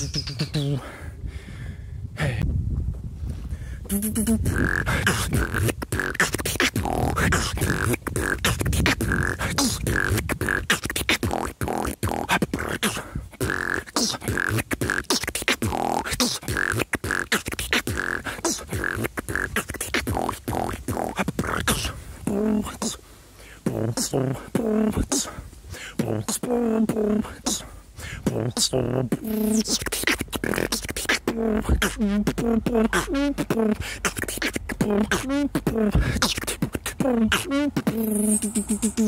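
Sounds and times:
person beatboxing: 0.0s - 1.0s, 3.9s - 39.0s.

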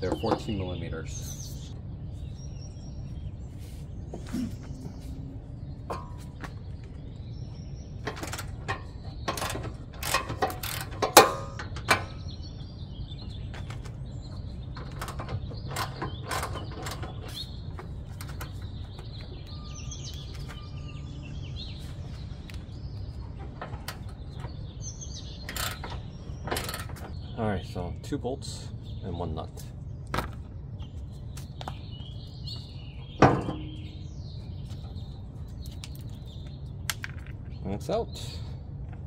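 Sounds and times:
birds chirping faintly: 0.0s - 39.0s.

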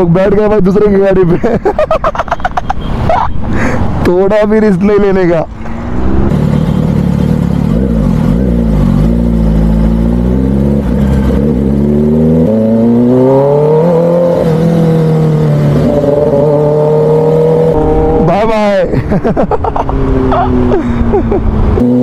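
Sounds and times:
motorcycle engine accelerating: 5.5s - 22.0s.

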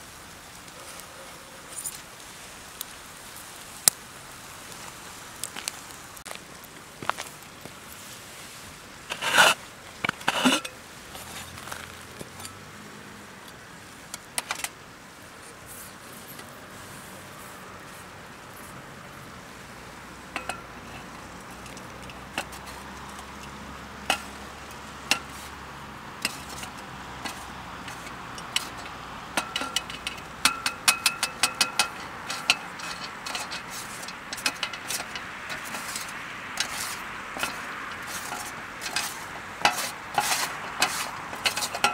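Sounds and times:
steady hiss: 0.0s - 41.9s
metal utensils clinking on pan: 9.1s - 12.6s, 20.3s - 25.5s, 26.2s - 41.9s.

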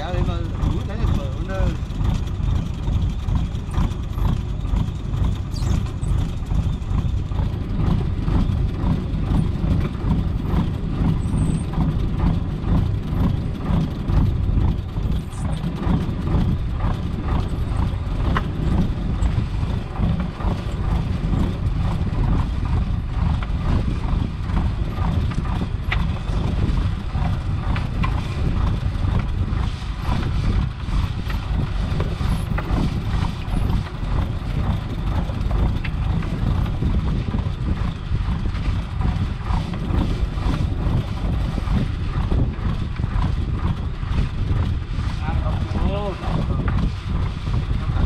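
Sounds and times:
boat engine rumbling: 0.0s - 48.0s.

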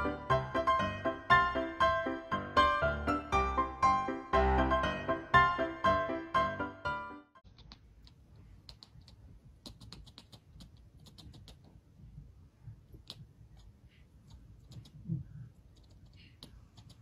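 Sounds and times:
kitten chattering: 7.5s - 11.7s, 12.9s - 17.0s.

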